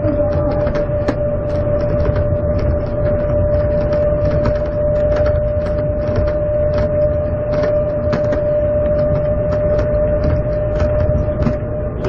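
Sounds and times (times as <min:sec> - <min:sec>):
clicks and rattles: 0:00.0 - 0:11.6
people-mover train running: 0:00.0 - 0:12.0.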